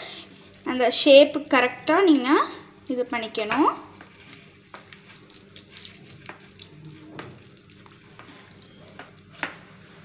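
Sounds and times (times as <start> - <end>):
aluminium foil crinkling: 2.8 - 9.3.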